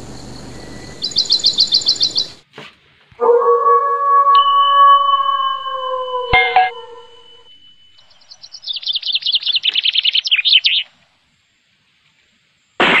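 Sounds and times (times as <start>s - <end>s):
bird chirping rapidly: 0.9s - 2.4s, 8.0s - 10.9s.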